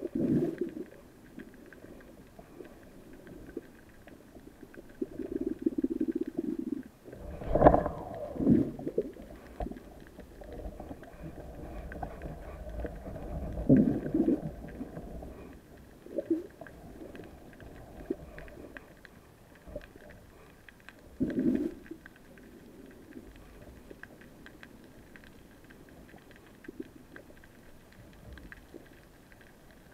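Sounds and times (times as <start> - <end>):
gurgling water swooshes: 0.0 - 19.2
underwater rumble of moving water: 0.0 - 29.9.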